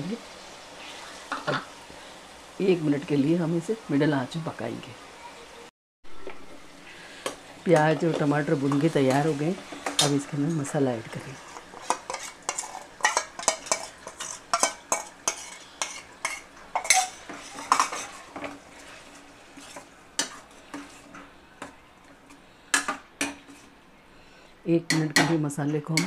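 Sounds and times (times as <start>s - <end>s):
ladle scraping steel pan: 11.1s - 21.2s.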